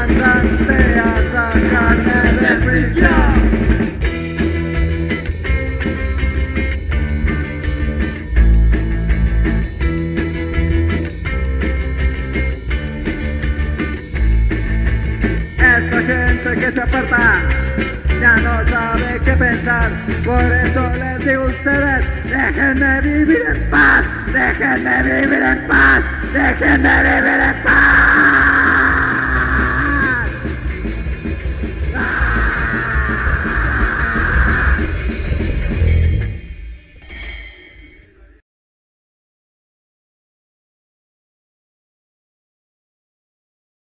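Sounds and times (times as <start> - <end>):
electric guitar bending notes: 0.0 - 37.4
punk rock band playing: 0.0 - 37.5.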